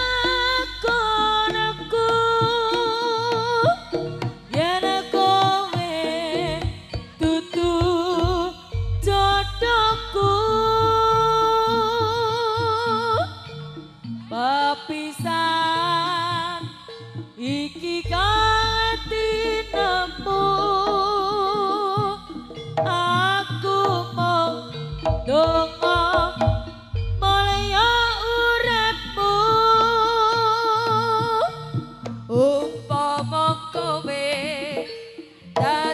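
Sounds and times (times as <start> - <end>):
drumming: 0.0 - 13.1, 17.4 - 30.2
sliding melody with vibrato: 0.0 - 35.9.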